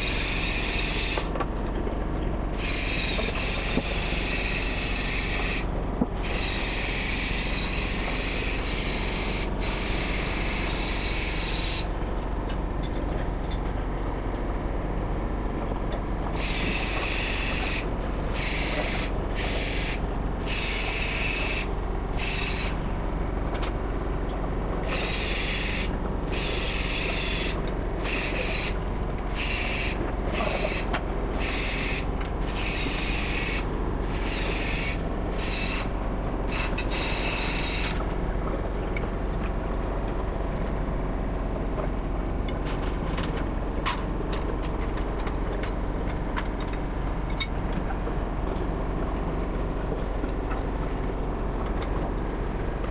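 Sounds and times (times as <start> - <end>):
machinery hum: 0.0 - 52.9
rasping hiss: 16.4 - 22.8, 24.9 - 28.8, 29.4 - 35.9.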